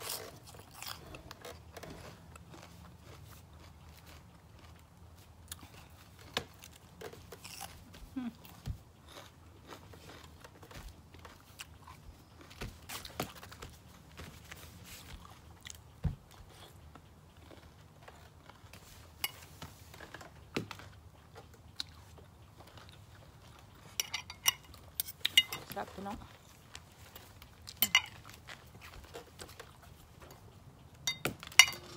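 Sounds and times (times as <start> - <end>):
chewing with wet mouth clicks: 20.9 - 25.6
spoon clinking against bowl: 24.0 - 25.8, 27.8 - 28.2.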